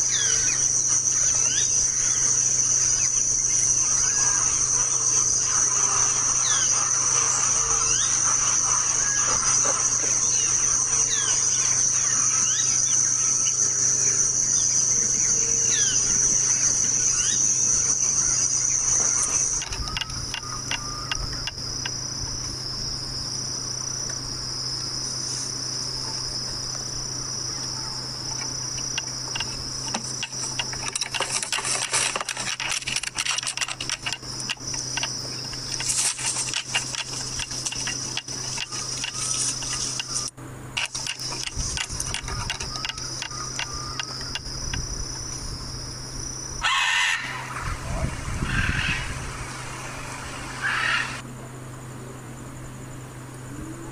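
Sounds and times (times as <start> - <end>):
bird chirps: 0.0 - 21.6, 33.8 - 40.3, 40.9 - 44.8
high-pitched insect chorus: 0.0 - 53.9.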